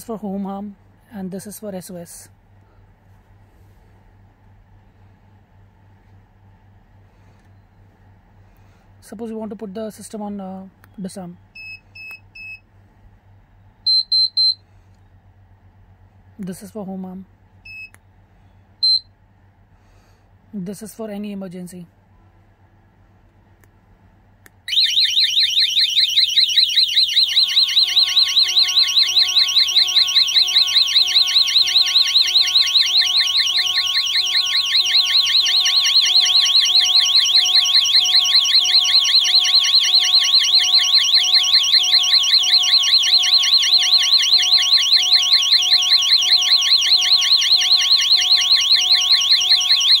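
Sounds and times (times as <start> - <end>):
alarm siren warbling wail: 24.7 - 50.0
steady lower tone: 26.2 - 50.0.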